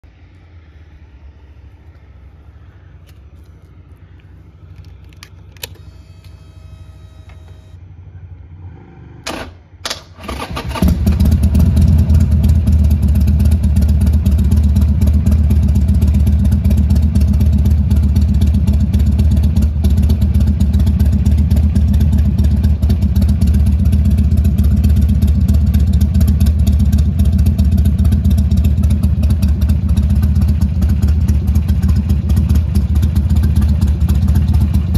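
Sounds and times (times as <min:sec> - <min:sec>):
click and brief whine: 0:04.8 - 0:07.8
motorcycle engine idling: 0:10.8 - 0:34.9.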